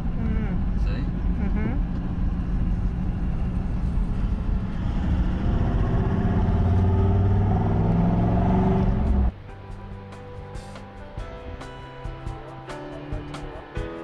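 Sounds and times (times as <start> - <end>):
diesel engine accelerating: 0.0 - 9.4
music: 8.9 - 14.0.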